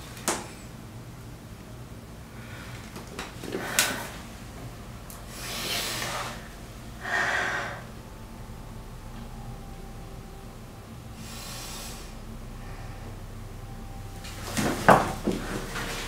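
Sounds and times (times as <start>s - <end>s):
faint low hum: 0.0s - 16.0s
woman breathing heavily: 2.3s - 8.6s.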